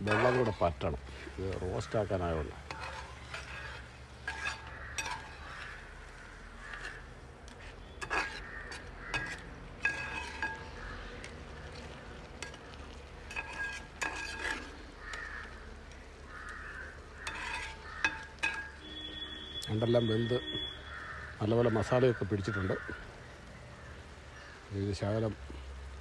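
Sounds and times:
spatula scraping pot: 0:00.0 - 0:15.6, 0:16.4 - 0:18.9
crows cawing: 0:00.1 - 0:19.0, 0:20.7 - 0:24.7.

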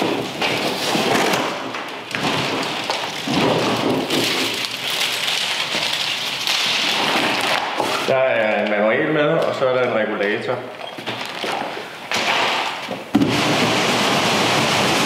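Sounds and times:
plastic straps crackling rustle: 0:00.0 - 0:08.8, 0:11.0 - 0:12.9.

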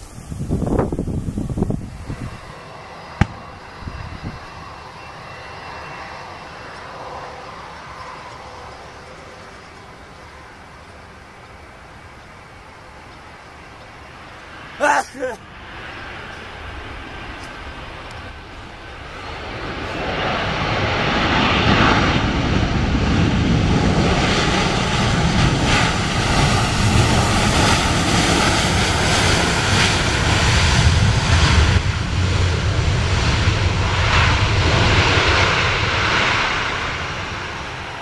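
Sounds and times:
faint whine: 0:00.0 - 0:22.2
jet engines roaring: 0:00.0 - 0:38.0.

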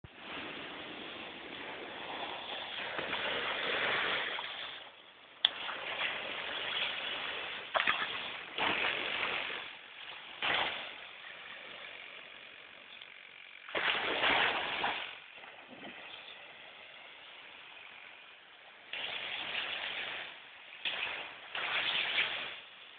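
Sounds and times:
ocean surf washing: 0:00.1 - 0:05.0.

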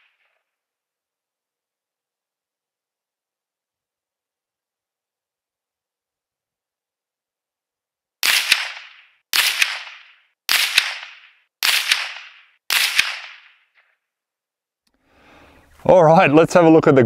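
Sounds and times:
rifle shots: 0:08.2 - 0:13.8
sharp crack: 0:08.2 - 0:14.0.

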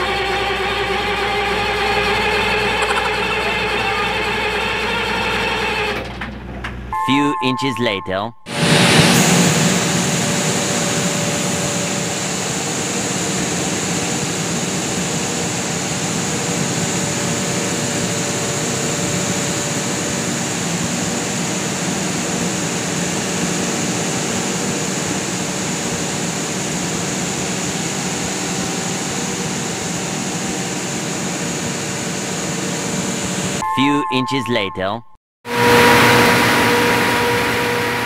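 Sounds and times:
generators droning: 0:00.0 - 0:06.1.

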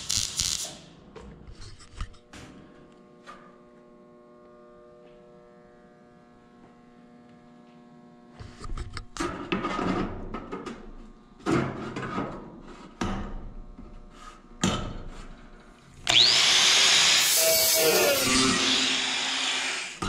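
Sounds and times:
angle grinder whining: 0:16.1 - 0:20.0.

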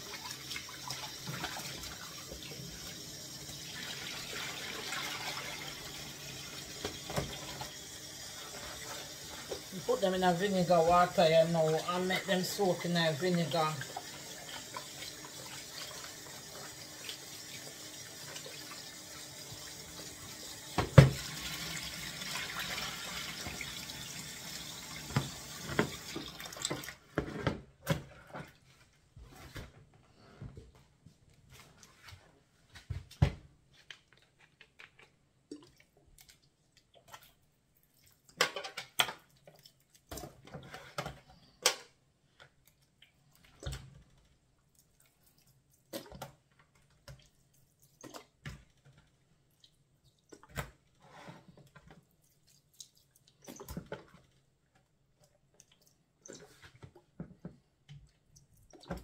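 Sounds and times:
tap water running into bowl: 0:00.0 - 0:27.0.

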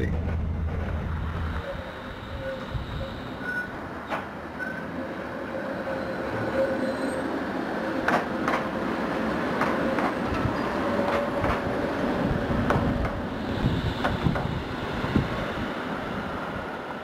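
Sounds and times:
tram rumbling past: 0:00.0 - 0:17.0
tram wheels clacking over rail joints: 0:03.0 - 0:05.0, 0:08.0 - 0:15.4.

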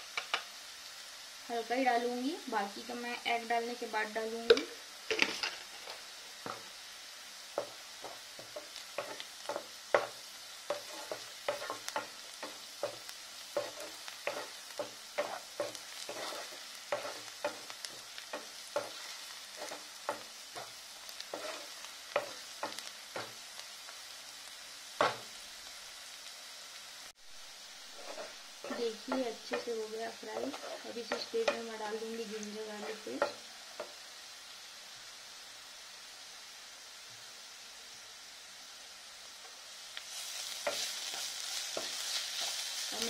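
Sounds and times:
onions sizzling in hot oil: 0:00.0 - 0:43.0
wooden spatula knocking and scraping: 0:04.5 - 0:06.7, 0:07.6 - 0:23.4, 0:28.0 - 0:31.7.

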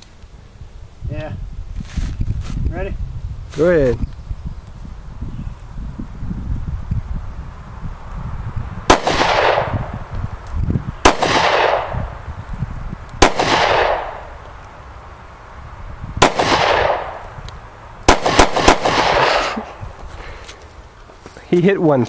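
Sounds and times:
handgun shots with echo: 0:08.9 - 0:09.9, 0:11.1 - 0:12.0, 0:13.2 - 0:14.3, 0:16.2 - 0:17.2, 0:18.1 - 0:19.3.

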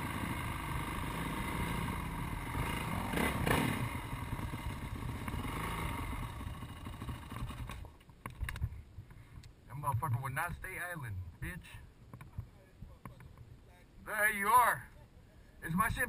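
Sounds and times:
motorbike engine running: 0:00.0 - 0:07.9.

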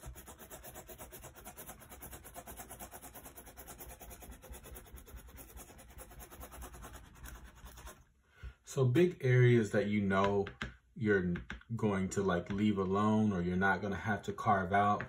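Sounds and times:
hand tool rubbing on paper: 0:00.0 - 0:08.0.

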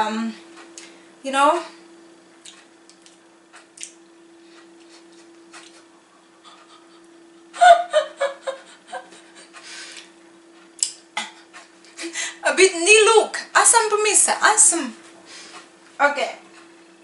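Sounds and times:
steady low hum: 0:00.0 - 0:17.0
woman laughing: 0:06.3 - 0:09.6.

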